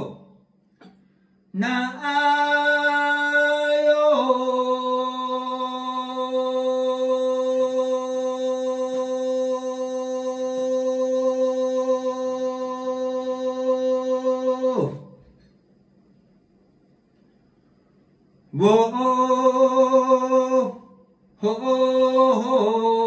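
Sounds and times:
man singing a long note: 0:01.5 - 0:15.2, 0:18.5 - 0:23.0.

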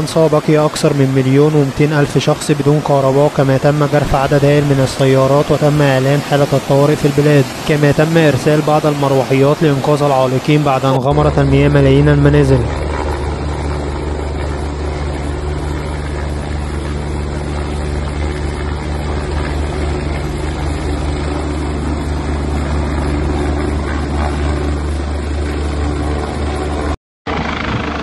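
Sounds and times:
helicopter hovering: 0:00.0 - 0:28.0.

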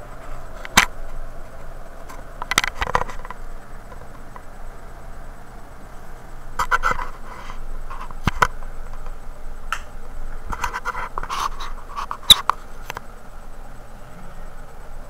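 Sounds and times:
scratching and rubbing rustles: 0:06.6 - 0:09.2, 0:10.4 - 0:13.0.

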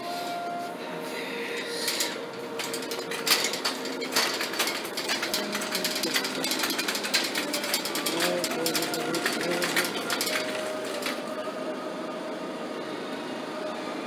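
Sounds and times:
wire shopping cart rattling: 0:01.6 - 0:11.7.

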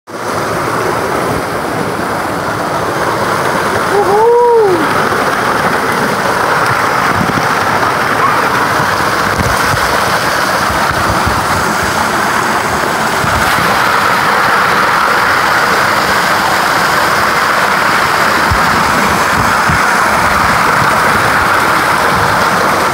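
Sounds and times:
waterfall rushing and splashing: 0:00.1 - 0:22.9
person saying ooh: 0:03.9 - 0:05.0.

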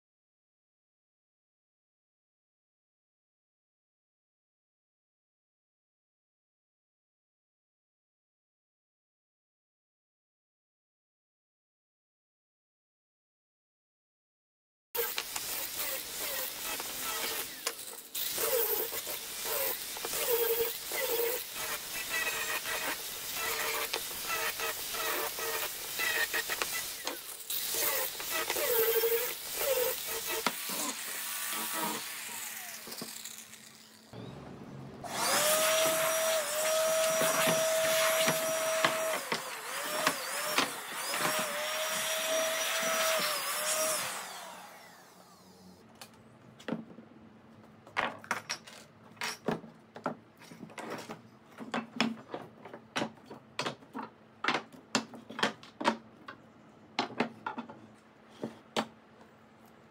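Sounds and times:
angle grinder sanding wood: 0:15.0 - 0:34.1, 0:35.1 - 0:45.6
electric blower running: 0:21.1 - 0:45.8.

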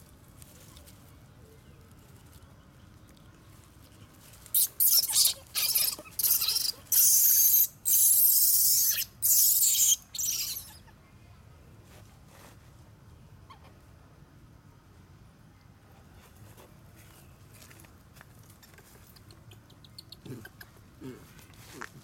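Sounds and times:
baby monkey shrieking: 0:04.5 - 0:10.8.

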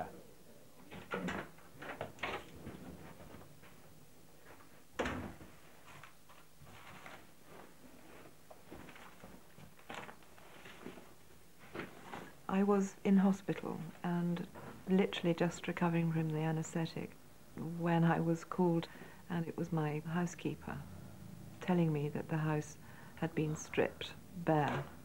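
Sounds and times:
door clicks and knocks: 0:00.9 - 0:02.5.

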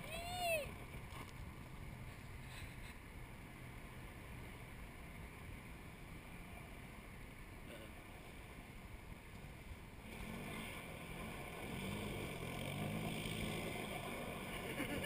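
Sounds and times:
quad engine revving: 0:10.0 - 0:15.0.

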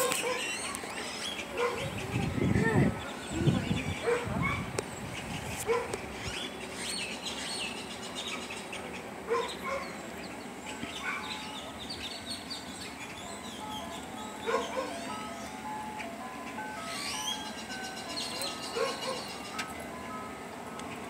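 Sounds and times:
dog barking: 0:00.0 - 0:00.5, 0:01.6 - 0:02.0, 0:04.0 - 0:04.7, 0:05.6 - 0:06.0, 0:09.3 - 0:10.0, 0:11.0 - 0:11.3, 0:14.4 - 0:15.0, 0:18.4 - 0:19.3
small birds chirping: 0:00.0 - 0:19.9.

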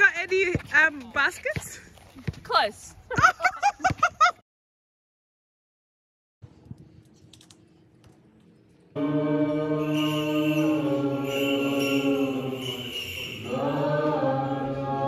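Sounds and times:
church chanting: 0:09.0 - 0:15.0.

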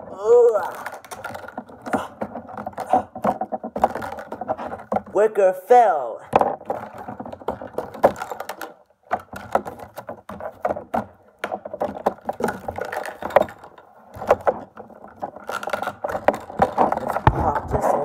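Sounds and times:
plastic packaging crinkling: 0:00.5 - 0:04.9.

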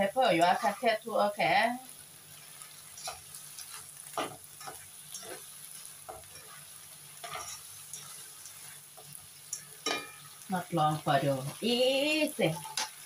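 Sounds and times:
meat and peppers sizzling in wok: 0:00.0 - 0:13.0
spatula scraping a pan: 0:00.3 - 0:01.1, 0:02.3 - 0:10.4, 0:12.4 - 0:13.0.

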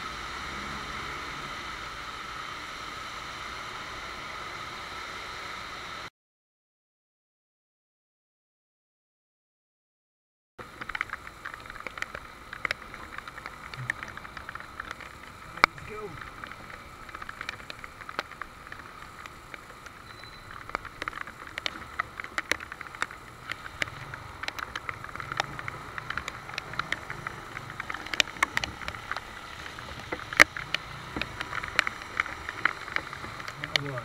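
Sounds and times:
rain falling: 0:00.0 - 0:06.1, 0:10.6 - 0:34.0
raindrops ticking on camera: 0:10.6 - 0:34.0.

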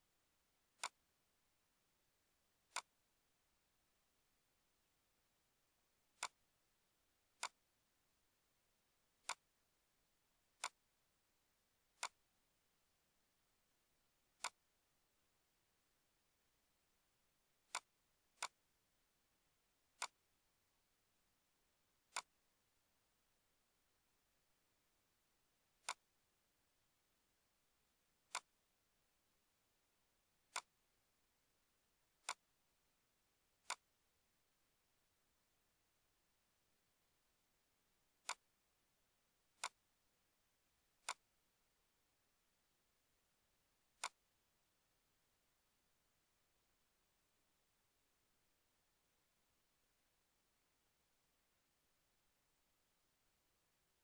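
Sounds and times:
computer mouse clicks: 0:00.8 - 0:01.0, 0:02.7 - 0:02.9, 0:06.2 - 0:06.4, 0:07.4 - 0:07.6, 0:09.2 - 0:09.5, 0:10.6 - 0:10.8, 0:12.0 - 0:12.2, 0:14.4 - 0:14.6, 0:17.7 - 0:18.6, 0:20.0 - 0:20.2, 0:22.1 - 0:22.4, 0:25.8 - 0:26.0, 0:28.3 - 0:28.6, 0:30.5 - 0:30.8, 0:32.2 - 0:32.5, 0:33.6 - 0:33.9, 0:38.2 - 0:38.5, 0:39.6 - 0:39.8, 0:41.0 - 0:41.3, 0:44.0 - 0:44.2.

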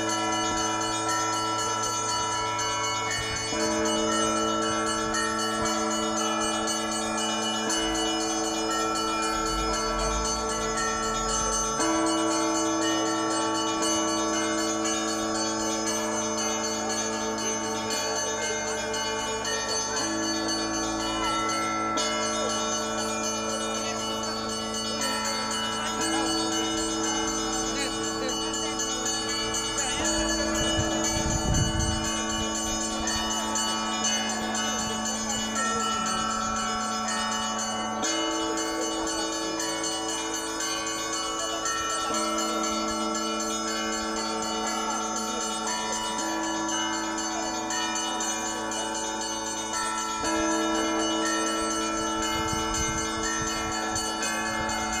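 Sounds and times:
church bells pealing: 0:00.0 - 0:55.0.

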